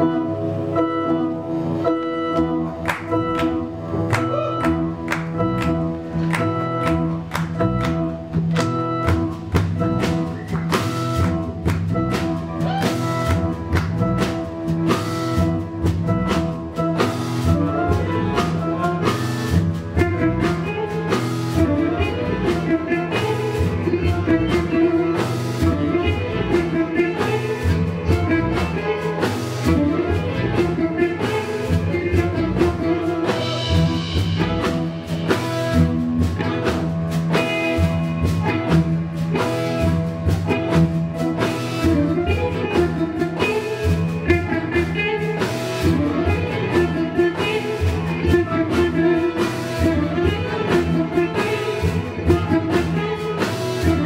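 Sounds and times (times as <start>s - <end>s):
cello: 0.0s - 54.0s
guitar: 0.0s - 54.0s
saxophone: 0.0s - 54.0s.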